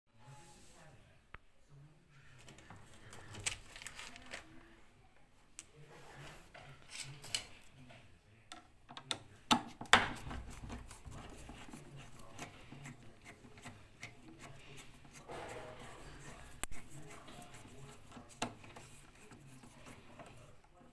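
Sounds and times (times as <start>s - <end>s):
screwdriver scraping metal: 10.1s - 20.6s.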